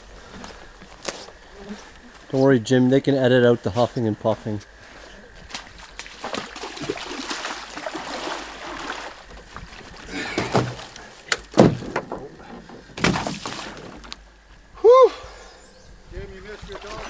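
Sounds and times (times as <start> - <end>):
hollow knocks of canoe hull: 9.3 - 14.2.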